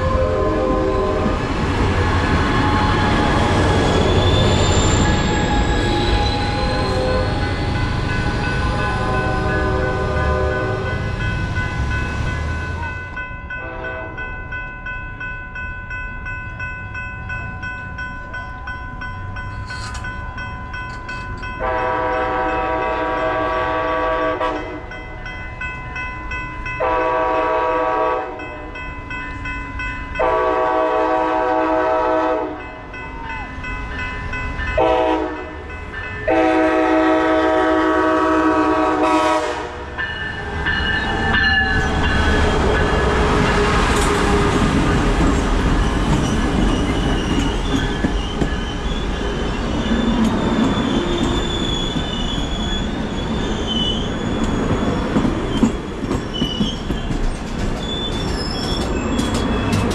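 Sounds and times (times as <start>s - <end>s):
train horn blasts: 0.0s - 3.5s, 5.8s - 7.7s, 8.6s - 11.1s, 13.5s - 14.3s, 21.6s - 25.0s, 26.8s - 28.7s, 30.2s - 32.8s, 34.8s - 40.0s
train rushing past: 0.0s - 14.6s, 16.2s - 59.9s
crossing signal bell ringing: 1.9s - 23.1s, 23.8s - 31.4s, 32.4s - 37.7s, 38.7s - 43.9s.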